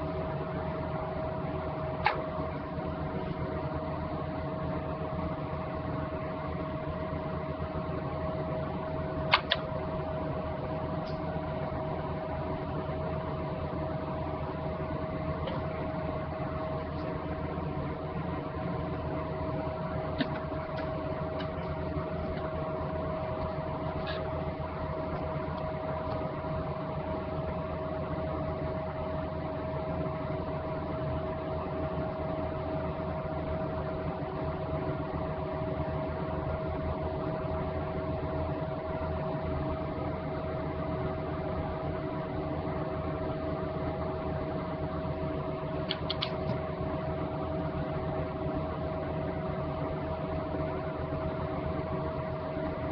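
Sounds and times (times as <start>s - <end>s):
machine hum with constant tone: 0.0s - 52.9s
faint clicks: 45.9s - 46.6s.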